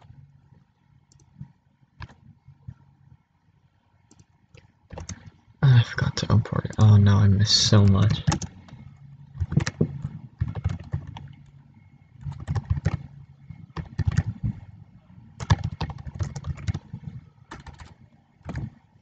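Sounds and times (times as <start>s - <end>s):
computer keyboard typing: 4.1s - 4.3s, 4.9s - 5.3s, 6.5s - 8.8s, 9.4s - 11.4s, 12.2s - 14.6s, 15.4s - 18.7s.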